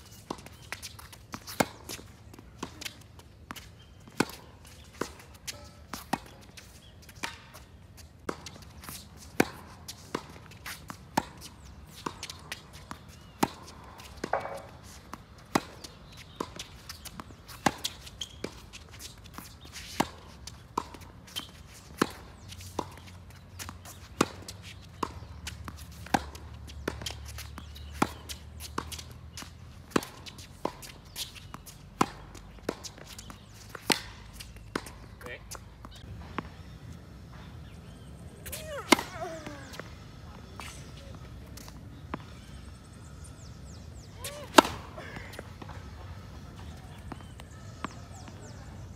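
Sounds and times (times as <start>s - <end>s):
racket hitting tennis ball: 0.1s - 48.9s
ball bouncing on court: 44.2s - 48.6s.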